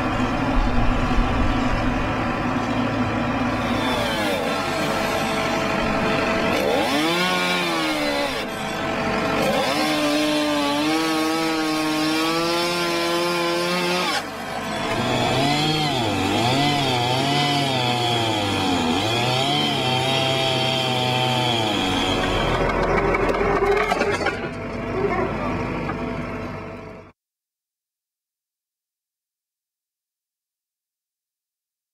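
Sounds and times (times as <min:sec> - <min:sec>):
chainsaw cutting wood: 0:00.1 - 0:24.5.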